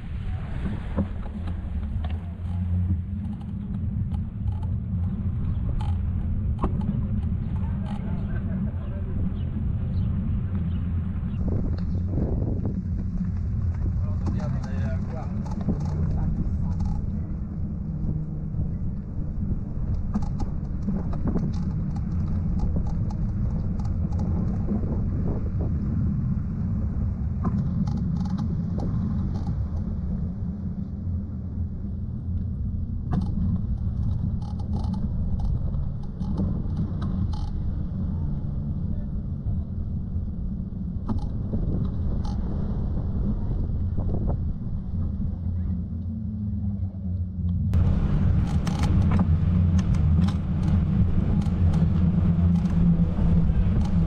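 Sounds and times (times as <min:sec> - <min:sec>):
wind rumble on microphone: 0:00.0 - 0:54.0
faint clicks: 0:19.8 - 0:24.8, 0:27.4 - 0:30.0, 0:33.1 - 0:37.7, 0:47.2 - 0:54.0.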